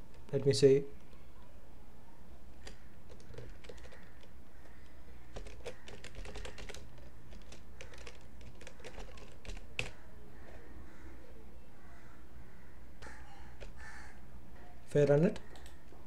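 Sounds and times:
loud keyboard click: 0:02.6 - 0:10.0
typing on computer keyboard: 0:02.6 - 0:10.0, 0:13.6 - 0:13.8, 0:15.0 - 0:15.8.

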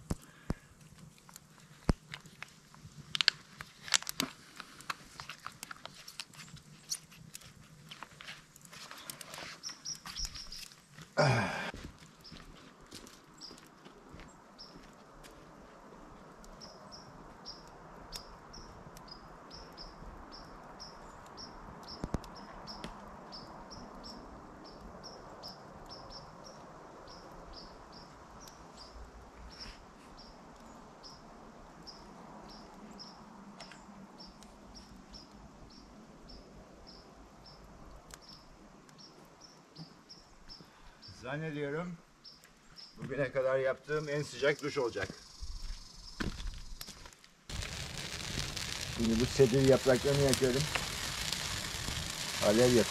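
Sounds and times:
faint steady hiss: 0:26.0 - 0:52.9.

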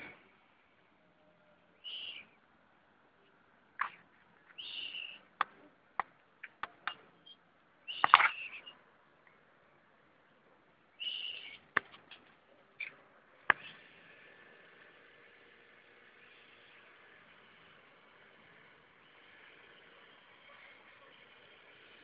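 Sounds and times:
mouse squeaking: 0:07.2 - 0:08.7, 0:11.0 - 0:11.6.

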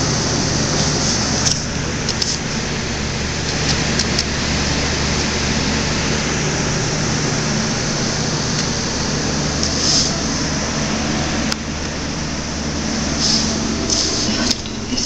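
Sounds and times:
household machine hum and hiss: 0:00.0 - 0:15.0.

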